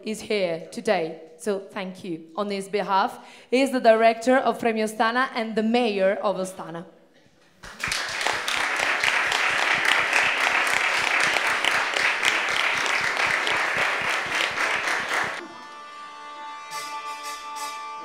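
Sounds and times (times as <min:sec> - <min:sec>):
audience applause: 0:07.6 - 0:15.4
music with sustained notes: 0:14.8 - 0:18.0.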